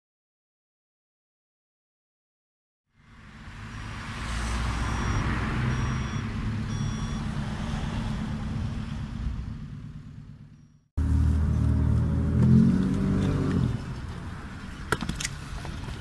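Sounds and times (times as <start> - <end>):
cars passing: 3.0 - 16.0
low engine rumble: 3.0 - 16.0
reversing beeper: 4.7 - 7.4, 10.5 - 10.9.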